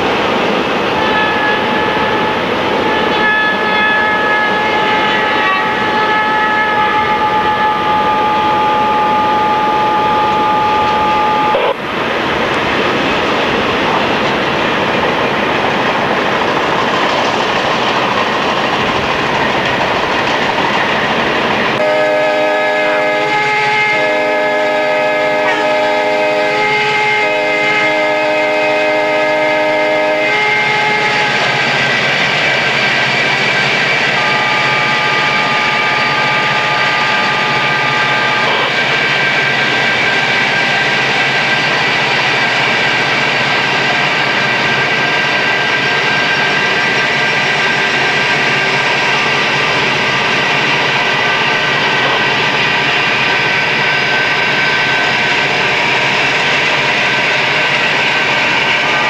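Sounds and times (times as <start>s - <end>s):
freight train rumbling: 0.0s - 59.0s
low multi-chime locomotive horn: 0.9s - 11.8s, 21.8s - 59.0s
diesel locomotive air horn: 1.0s - 11.8s, 21.8s - 32.2s, 33.4s - 41.4s, 56.8s - 59.0s.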